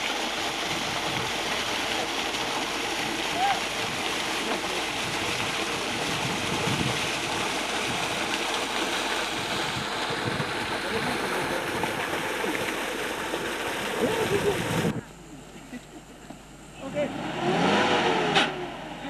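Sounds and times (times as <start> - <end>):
water gushing into a pool: 0.0 - 15.0.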